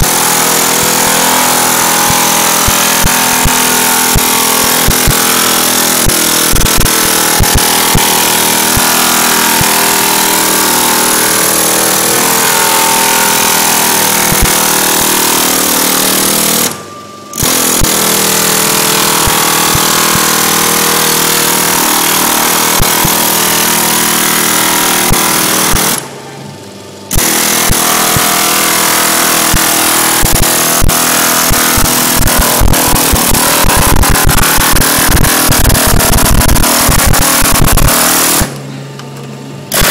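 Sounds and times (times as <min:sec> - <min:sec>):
air hammer on metal sheet: 0:00.0 - 0:26.2, 0:27.1 - 0:38.7.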